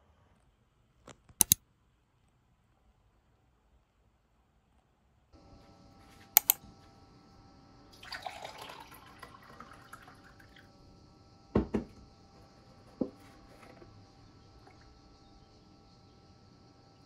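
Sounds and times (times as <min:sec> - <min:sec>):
sharp clicks: 0:01.1 - 0:01.6, 0:06.4 - 0:06.6
coffee pouring into a glass: 0:07.9 - 0:10.8, 0:12.8 - 0:15.3
objects knocking on a counter: 0:11.6 - 0:12.0, 0:12.9 - 0:13.8.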